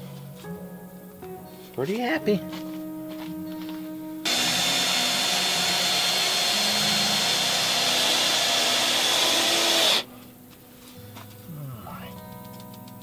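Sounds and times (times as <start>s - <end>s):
power tool running with whine: 4.2s - 10.1s.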